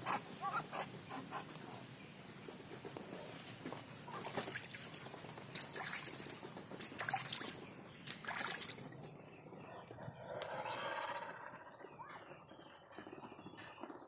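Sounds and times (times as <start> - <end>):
duck splashing in water basin: 4.1 - 9.1.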